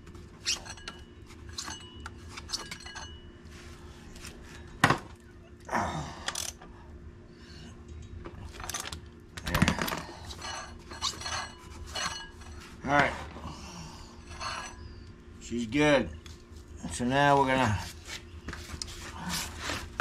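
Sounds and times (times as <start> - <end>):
metal tools clicking and clinking: 0.4 - 3.2, 7.9 - 13.1, 14.2 - 14.9
metal clanks: 0.4 - 3.3, 7.9 - 13.1.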